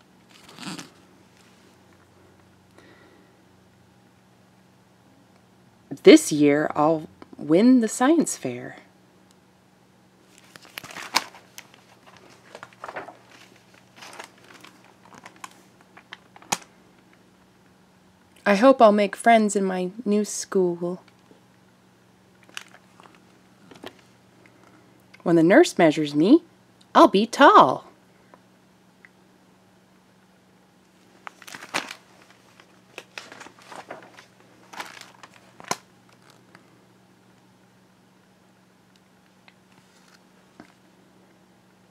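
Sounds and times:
paper rustling and crinkling: 0.2 - 1.6, 10.2 - 16.7, 22.4 - 24.1, 31.0 - 36.6, 39.7 - 40.8.

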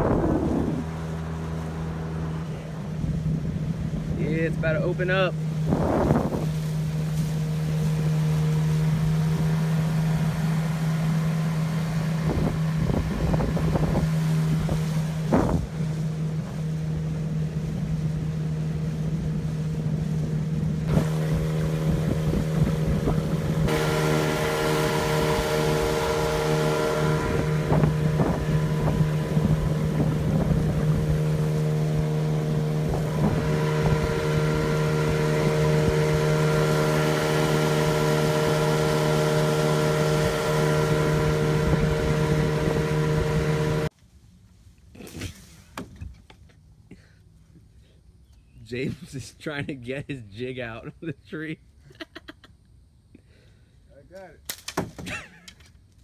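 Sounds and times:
wind on microphone: 0.0 - 8.0, 8.8 - 43.9
motorboat engine running: 0.0 - 43.9.

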